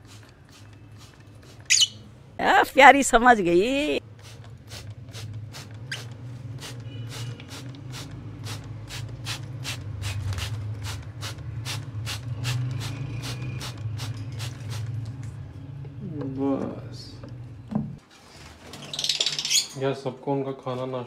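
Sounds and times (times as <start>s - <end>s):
spray bottle squirts: 0.0s - 2.0s, 4.2s - 14.9s.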